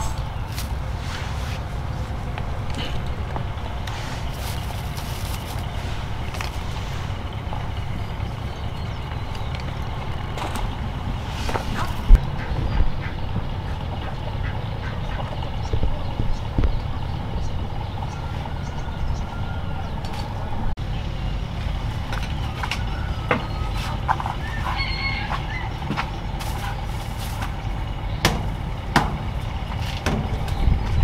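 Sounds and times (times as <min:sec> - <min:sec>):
poultry calling: 0:00.0 - 0:20.0, 0:22.3 - 0:28.2
low rumble: 0:00.0 - 0:24.3.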